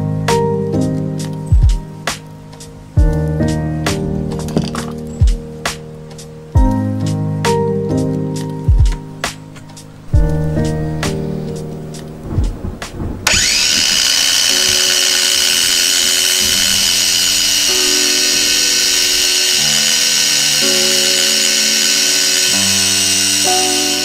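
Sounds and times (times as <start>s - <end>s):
bench grinder whining: 13.2s - 24.0s.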